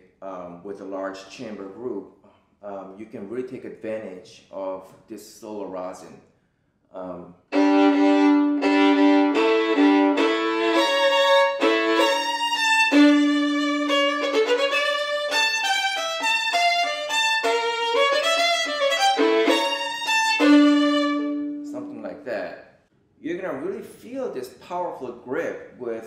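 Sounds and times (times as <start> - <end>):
solo violin playing double stops: 7.5 - 21.8.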